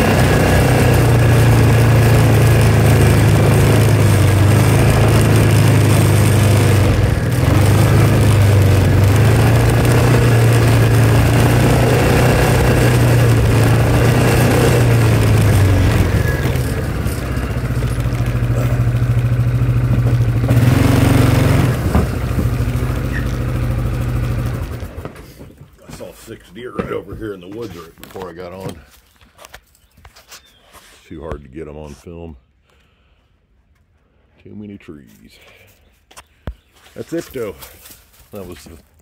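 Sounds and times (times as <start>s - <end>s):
vehicle engine running: 0.0s - 28.8s.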